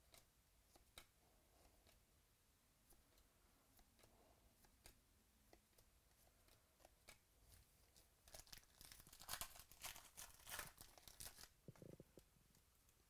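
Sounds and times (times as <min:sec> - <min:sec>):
foil wrapper tearing and crinkling: 0:08.3 - 0:11.5.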